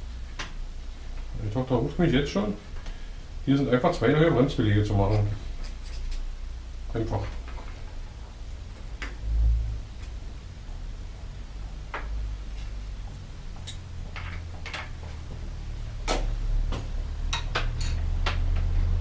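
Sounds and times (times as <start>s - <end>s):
low hum: 0.0s - 19.0s
metallic clicks of bicycle tools: 17.3s - 18.4s.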